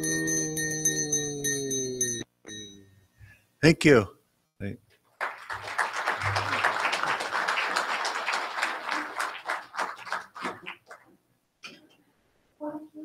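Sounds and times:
audience applauding: 5.2 - 11.1.

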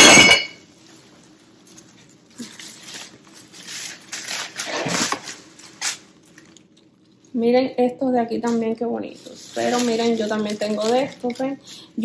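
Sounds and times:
leaf garland rustling: 0.6 - 6.7, 8.3 - 12.0.

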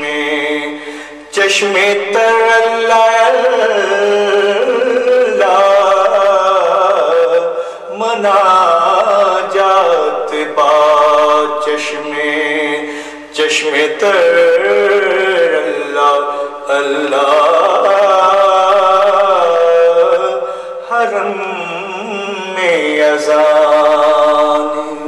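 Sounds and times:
person singing a hymn unaccompanied: 0.0 - 25.0.

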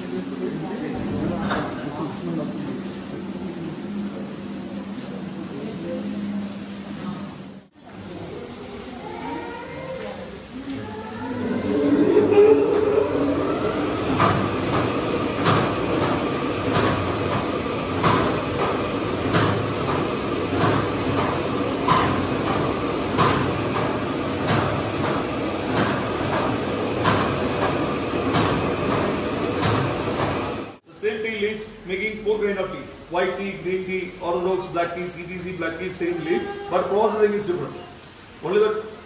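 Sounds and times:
mechanical rumble: 11.1 - 17.3.

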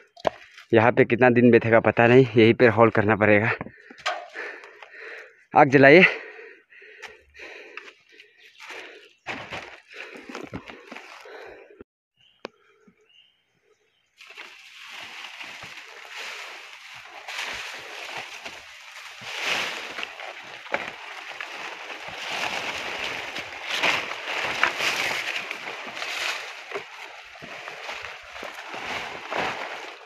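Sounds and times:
footsteps on path: 6.8 - 11.7, 14.2 - 30.0
leaves rustling and swishing: 14.2 - 30.0.

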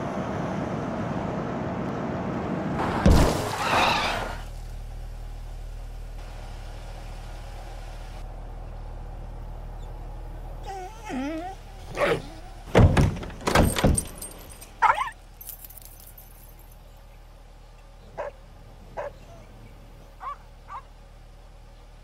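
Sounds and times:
dog yelping and whining: 10.6 - 12.4, 14.8 - 15.2
faint dog whimpers: 10.6 - 12.4.

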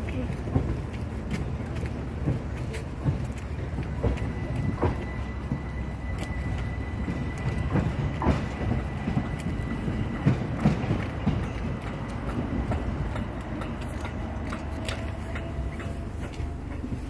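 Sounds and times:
train equipment low rumble: 0.0 - 17.0.

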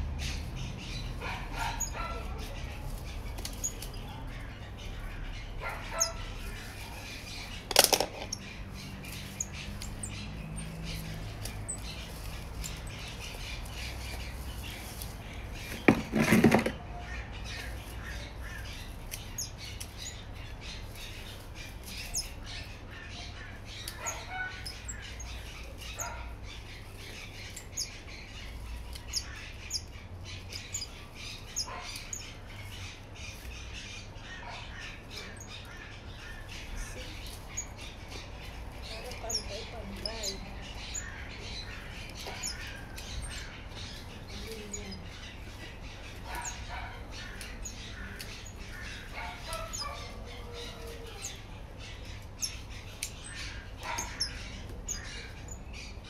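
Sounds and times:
scissors snipping stems: 47.2 - 50.0, 52.9 - 53.2.

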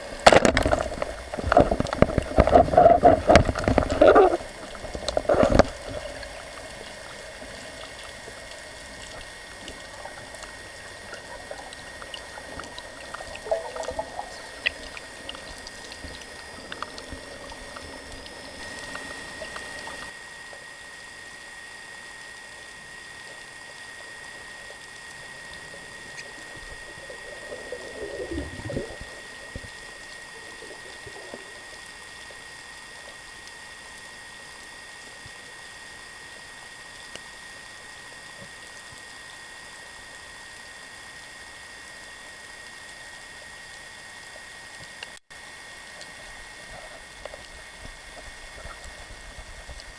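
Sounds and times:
underwater hiss: 0.0 - 20.1, 22.8 - 36.5
watery gurgles: 0.0 - 20.5, 22.5 - 35.3
thin high whine: 0.0 - 49.9.

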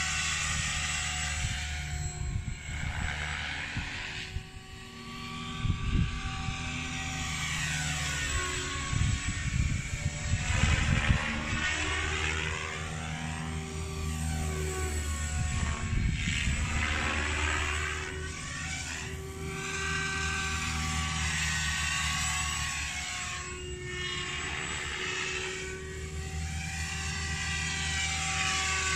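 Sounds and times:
model aircraft electric motor drone: 0.0 - 28.9.

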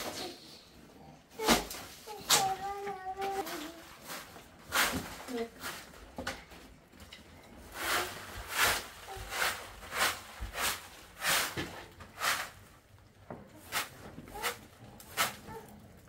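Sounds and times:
short hissing scraping strokes: 7.7 - 11.6, 12.2 - 12.6.

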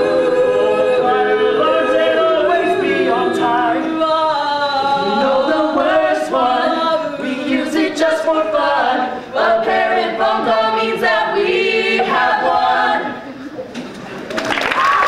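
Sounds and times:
group singing in chorus: 0.0 - 13.3.

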